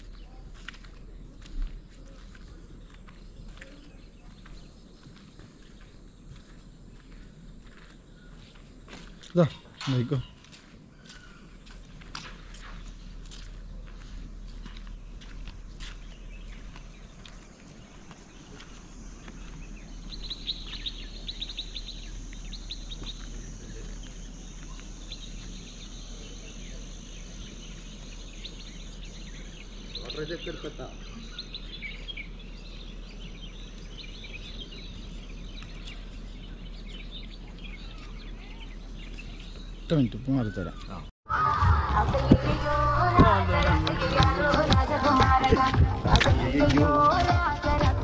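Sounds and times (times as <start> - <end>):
birds chirping: 0.0 - 48.0
high insect drone: 16.0 - 36.6.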